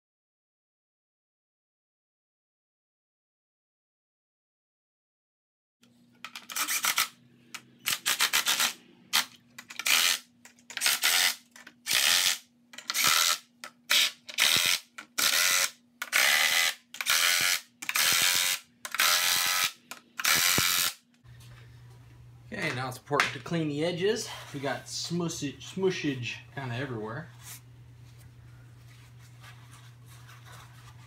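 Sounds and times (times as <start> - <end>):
impact driver rattling bursts: 7.8 - 20.9.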